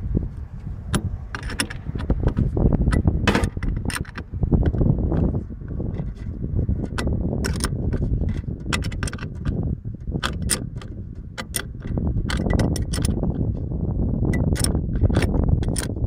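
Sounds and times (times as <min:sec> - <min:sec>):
low rumble: 0:00.0 - 0:16.0
ratchet wrench clicking: 0:06.9 - 0:09.6, 0:10.2 - 0:13.2, 0:14.4 - 0:16.0.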